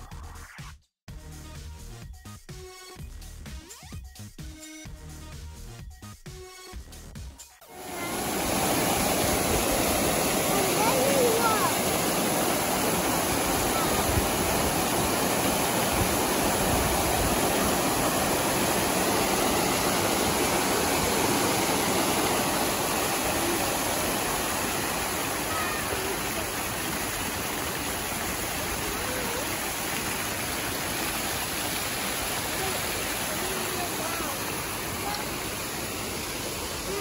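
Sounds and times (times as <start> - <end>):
fountain water splashing: 7.7 - 37.0.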